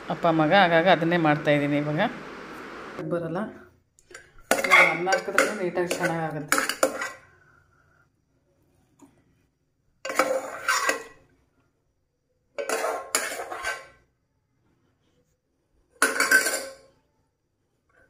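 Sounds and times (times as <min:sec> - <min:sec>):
metal spoon scraping pressure cooker: 0:04.5 - 0:07.3, 0:10.1 - 0:11.2, 0:12.6 - 0:14.0.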